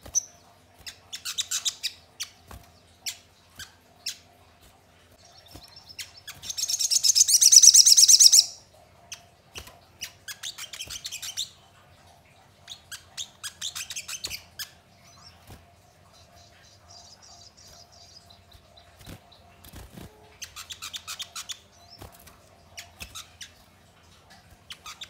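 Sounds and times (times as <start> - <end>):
bird high chirps: 5.2 - 9.2, 20.2 - 22.1, 24.6 - 25.0
bird fast trill: 5.4 - 8.6.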